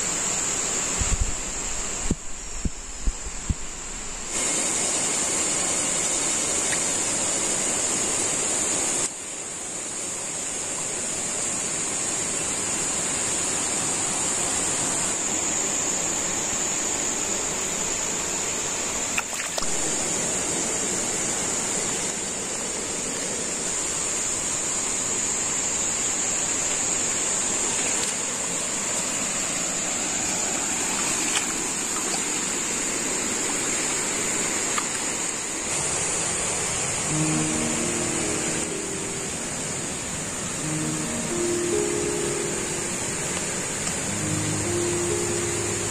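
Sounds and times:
rushing hiss like running water: 0.0s - 45.9s
high shrill drone: 36.5s - 45.9s.

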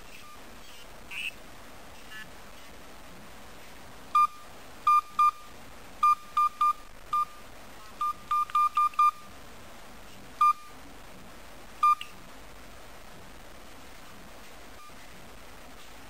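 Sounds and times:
phone keypad beeps: 4.2s - 7.4s, 8.0s - 9.2s, 11.8s - 12.1s.

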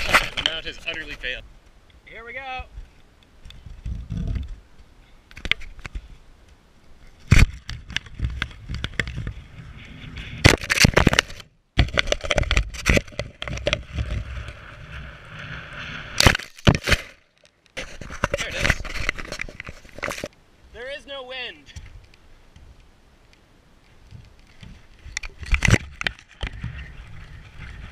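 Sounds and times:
wind noise on microphone: 2.6s - 4.7s, 7.0s - 17.0s, 24.0s - 27.9s.

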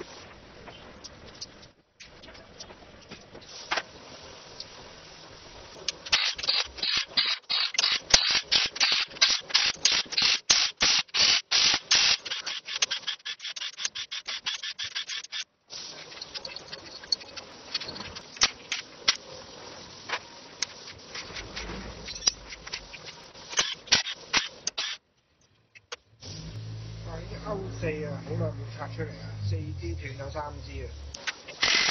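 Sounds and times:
faint clicks and scrapes: 12.2s - 19.4s, 20.0s - 26.1s.

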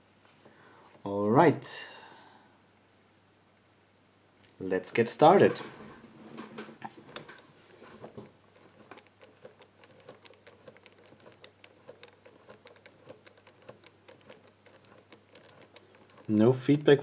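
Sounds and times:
combination lock wheel clicking: 7.0s - 16.4s.

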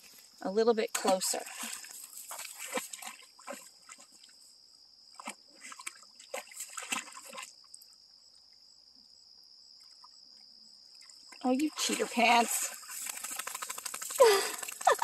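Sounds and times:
dog splashing in water: 0.9s - 4.3s, 5.2s - 7.6s, 11.4s - 15.0s.

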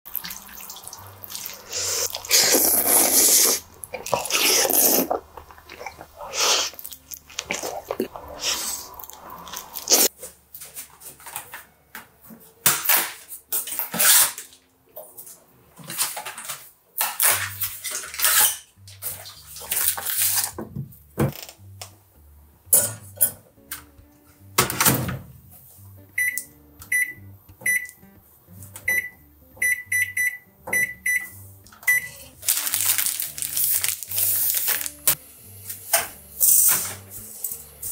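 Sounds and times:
pans and utensils clattering: 12.6s - 20.8s
microwave keypad beeps: 26.2s - 28.0s, 28.8s - 32.2s
packaging rustling: 32.4s - 35.1s.

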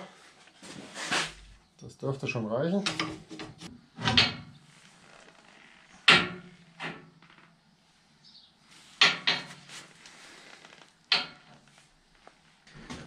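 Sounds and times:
steel pipe clunking: 2.8s - 4.6s, 6.0s - 7.1s, 9.0s - 9.8s, 11.1s - 11.7s.

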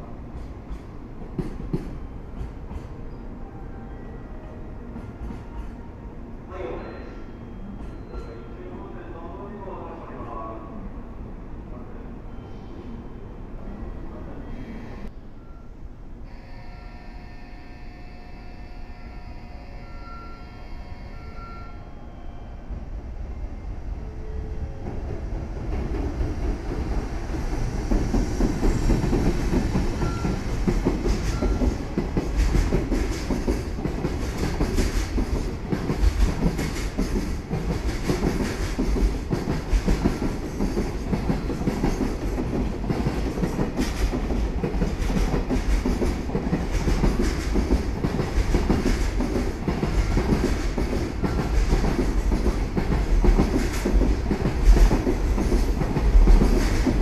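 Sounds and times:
train wheels clattering: 0.3s - 3.0s, 25.6s - 57.0s
deep train rumble: 22.6s - 57.0s.

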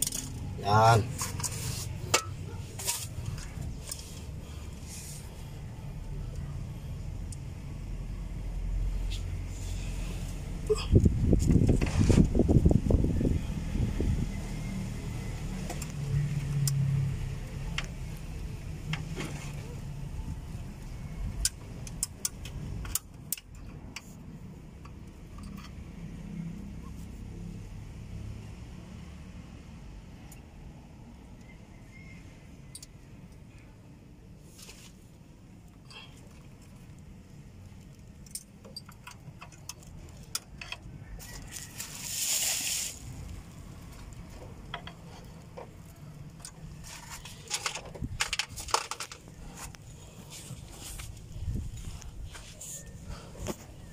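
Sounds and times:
metallic clicks of brake parts: 21.3s - 26.0s, 32.6s - 33.6s, 37.7s - 41.0s
small metal clicks and clinks: 37.8s - 40.9s
short hiss: 42.0s - 43.1s.

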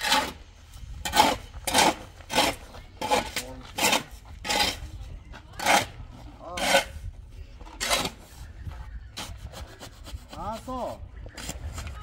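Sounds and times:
shovel scraping into sand: 0.0s - 4.9s.

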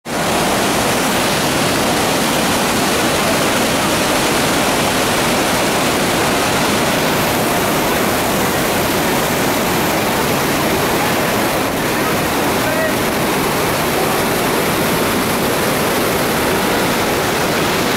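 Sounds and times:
waterfall pouring: 0.1s - 17.9s.

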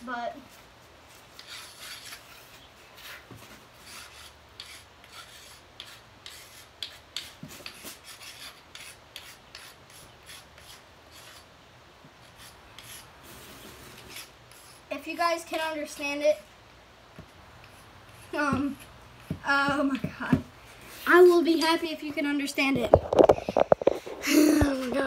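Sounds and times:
chalk scratching: 1.1s - 11.5s, 12.2s - 15.0s.

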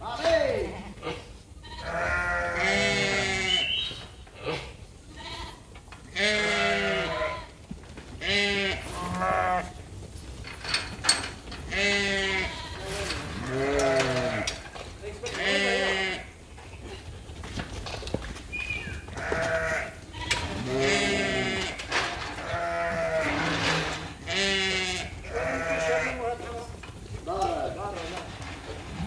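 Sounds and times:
sheep bleating: 0.6s - 3.8s, 4.4s - 7.6s, 8.2s - 9.8s, 11.7s - 14.6s, 15.3s - 16.4s, 19.2s - 26.6s.

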